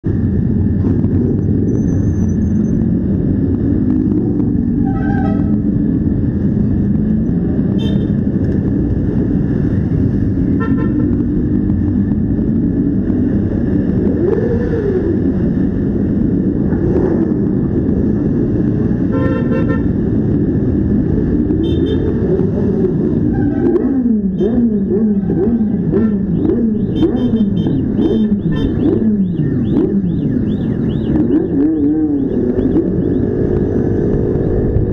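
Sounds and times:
quad bike engines running: 0:19.7 - 0:34.9.

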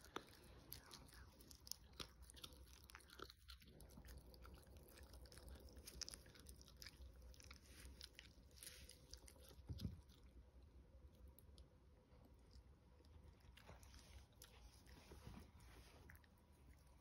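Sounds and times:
puppy teeth clicking on chew stick: 0:00.0 - 0:07.4.

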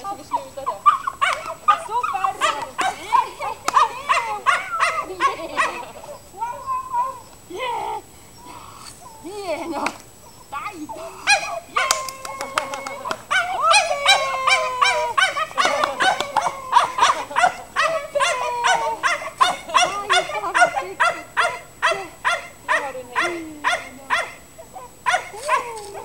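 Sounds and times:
dog barking: 0:00.8 - 0:05.9, 0:11.2 - 0:12.1, 0:13.3 - 0:26.0.

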